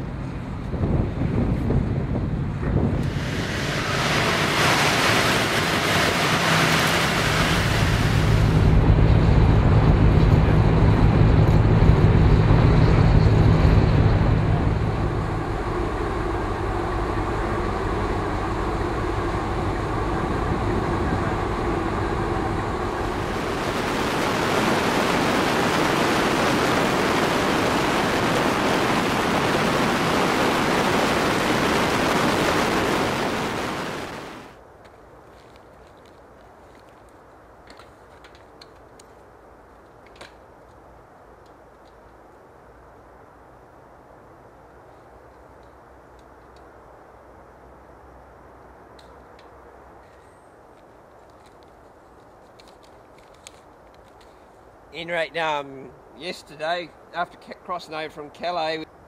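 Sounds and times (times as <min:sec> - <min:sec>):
ferry engine hum: 0:00.0 - 0:34.6
loud low engine drone: 0:00.0 - 0:34.6
sea and wind noise: 0:00.0 - 0:34.6
wind rushing over microphone: 0:00.0 - 0:34.6.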